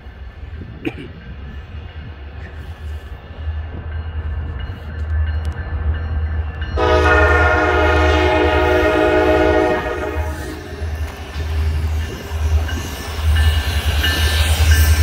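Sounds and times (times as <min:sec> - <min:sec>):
train rumble: 0:00.0 - 0:15.0
locomotive air horn blast: 0:06.8 - 0:10.9.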